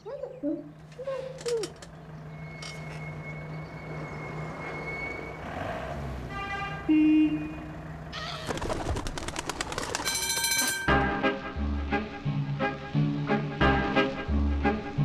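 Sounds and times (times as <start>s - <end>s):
tram electric hum: 0.0s - 15.0s
rapid clicking rattles: 8.6s - 10.4s.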